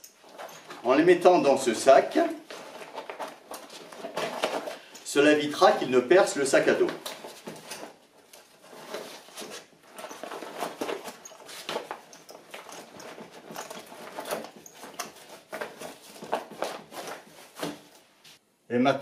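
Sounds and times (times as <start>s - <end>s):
steel crampons clinking: 0.0s - 0.9s.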